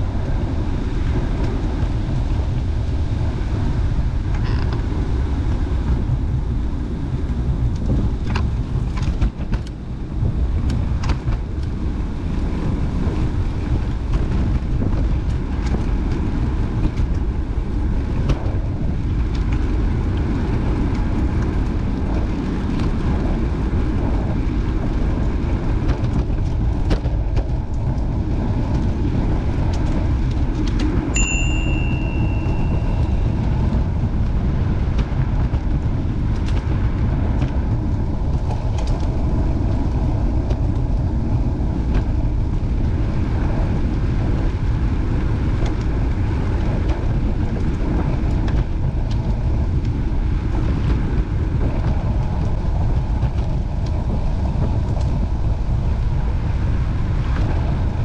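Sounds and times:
wind buffeting microphone: 0.0 - 58.0
short bell ring: 31.2 - 33.2.

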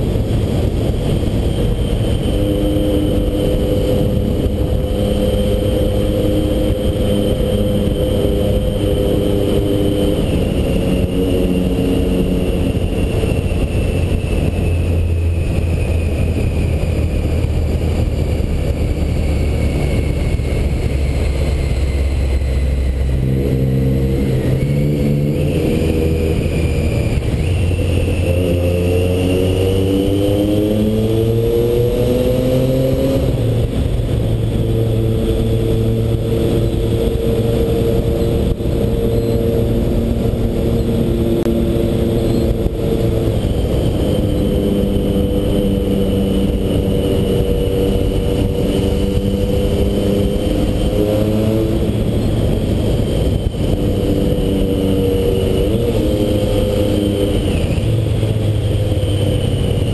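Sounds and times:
motorcycle engine: 0.0 - 59.9
wind rumble on microphone: 0.0 - 59.9.

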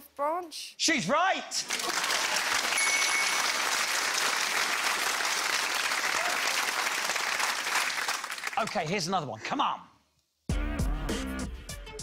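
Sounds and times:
audience applauding: 1.6 - 8.9.

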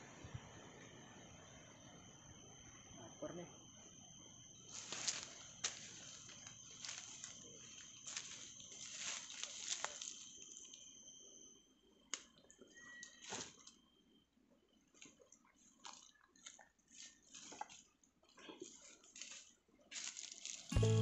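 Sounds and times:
dry leaves crunching underfoot: 4.8 - 7.4, 8.1 - 10.3, 18.6 - 21.0.

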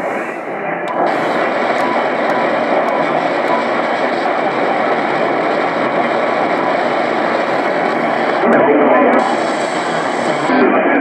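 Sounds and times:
radio static: 0.0 - 11.0.

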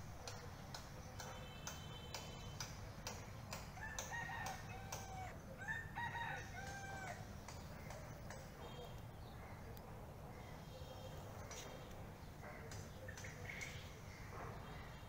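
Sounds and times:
regular ticking: 0.1 - 5.1
rooster crowing: 3.8 - 7.3.

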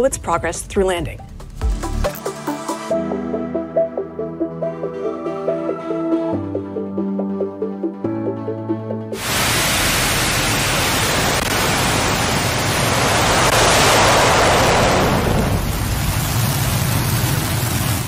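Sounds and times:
background music: 0.0 - 9.2
rocket engine roaring: 9.2 - 18.0.

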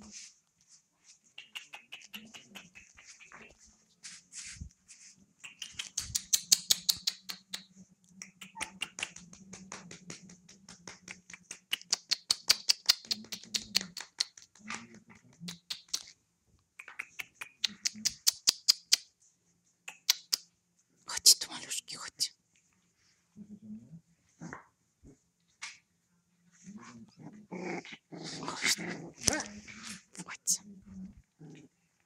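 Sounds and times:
puppy claws clicking on tiles: 1.3 - 3.5, 5.4 - 19.1, 19.9 - 20.5
faint low hum: 20.7 - 32.0.

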